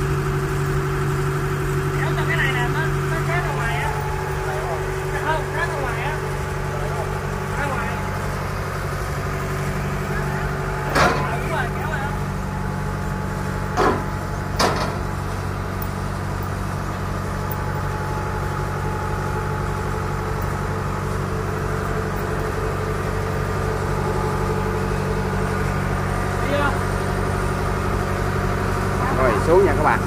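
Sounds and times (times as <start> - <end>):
diesel engine running: 0.0 - 30.0
sharp metallic clanks: 10.8 - 11.5, 13.7 - 15.2.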